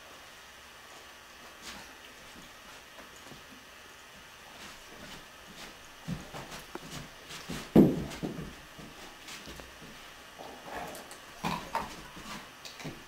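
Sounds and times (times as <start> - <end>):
dog paws thudding on carpet: 4.5 - 10.1.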